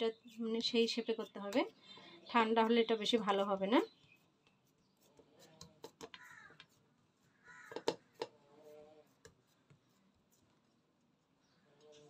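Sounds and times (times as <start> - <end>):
spatula tapping on plastic plate: 7.6 - 8.3.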